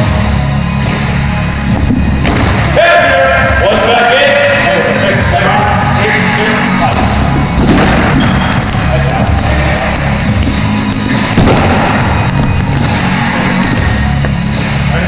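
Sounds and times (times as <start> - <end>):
music: 0.0 - 15.0
players' voices: 2.7 - 11.4.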